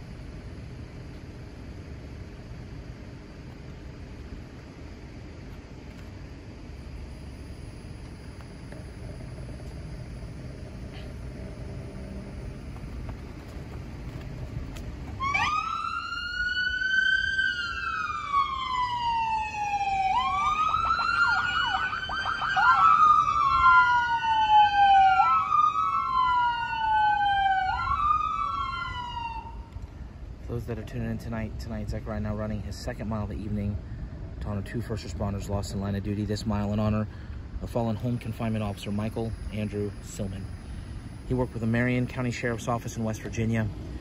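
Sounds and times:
police sirens wailing: 0:08.8 - 0:29.8.

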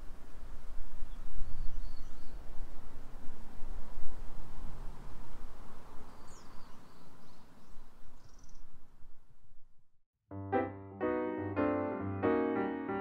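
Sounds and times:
outdoor background noise: 0:00.0 - 0:10.0
faint high bird chirps: 0:01.1 - 0:02.4, 0:06.1 - 0:08.7
solo piano music: 0:10.3 - 0:13.0.

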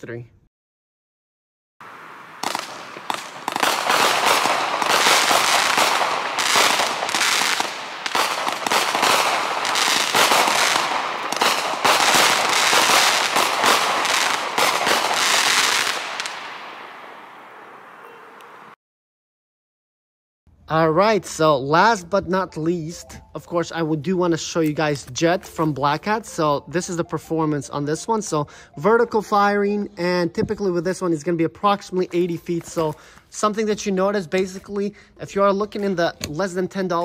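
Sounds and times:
fireworks launching and bursting: 0:01.8 - 0:18.8.

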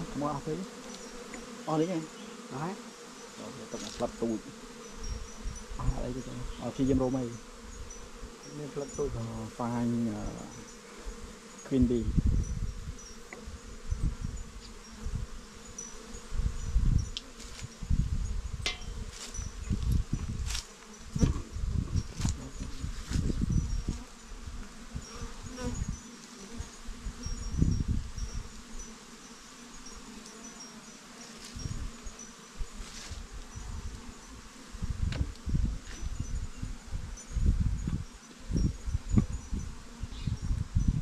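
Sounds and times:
bees buzzing: 0:00.0 - 0:41.0.

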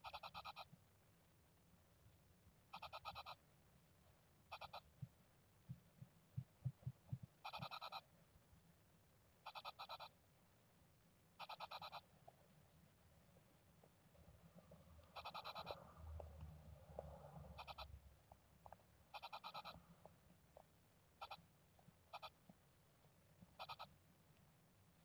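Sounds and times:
nestlings raspy buzzing calls: 0:02.8 - 0:03.4, 0:07.4 - 0:08.0, 0:09.4 - 0:10.1, 0:11.4 - 0:12.0, 0:15.2 - 0:15.8, 0:17.5 - 0:17.9, 0:19.2 - 0:19.8, 0:21.2 - 0:21.4, 0:22.1 - 0:22.4, 0:23.6 - 0:23.9
soft ticking of chicks shifting: 0:04.5 - 0:08.0.

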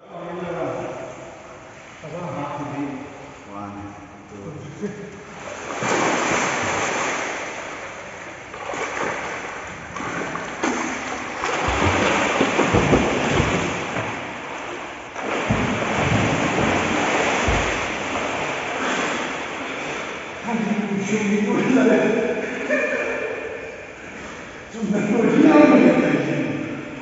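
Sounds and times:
water splashing in a pool: 0:05.0 - 0:21.1
low thuds: 0:15.3 - 0:18.4.

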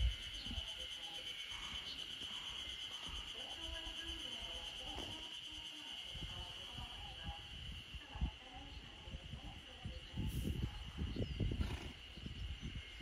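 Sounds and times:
insects chirring: 0:00.0 - 0:13.0.

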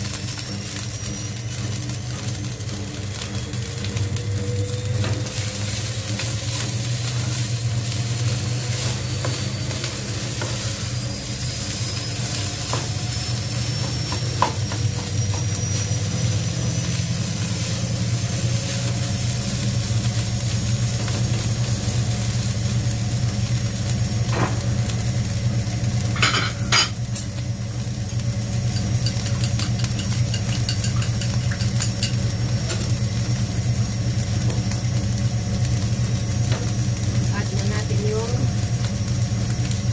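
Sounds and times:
rice sizzling in a wok: 0:00.0 - 0:39.9
steady low hum: 0:00.0 - 0:39.9.

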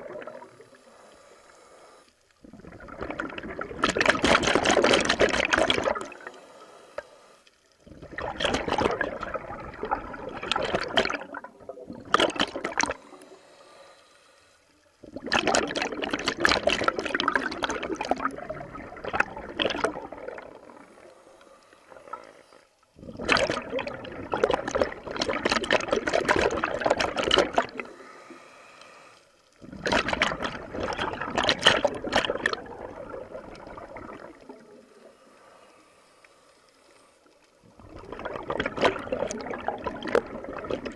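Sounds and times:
exhaled air bubbling underwater: 0:00.0 - 0:13.8, 0:14.8 - 0:28.5, 0:29.5 - 0:40.9.

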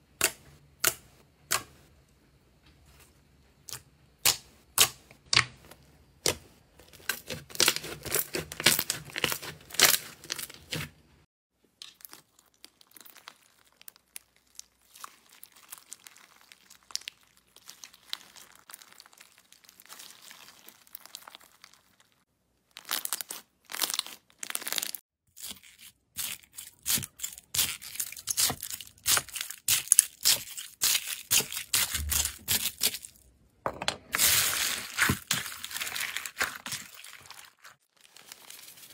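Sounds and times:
slime crackling and popping: 0:11.8 - 0:33.2.

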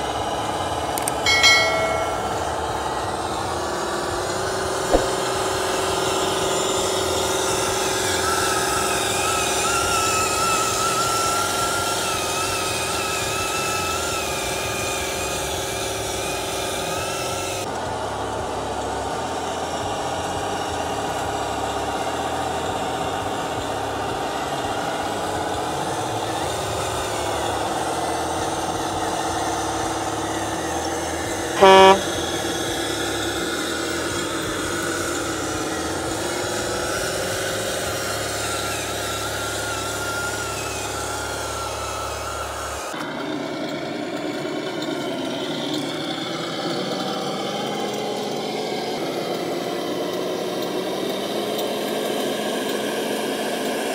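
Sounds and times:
toy truck engine running: 0:00.0 - 0:53.9
truck horn blast: 0:31.5 - 0:33.2.

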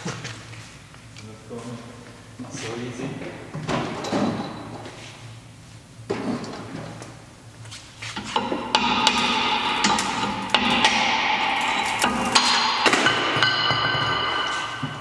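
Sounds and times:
metal disc ringing: 0:08.3 - 0:15.0.

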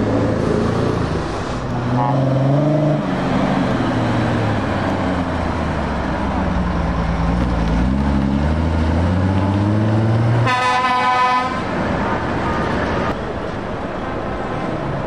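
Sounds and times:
truck diesel engine under load: 0:00.0 - 0:15.0.

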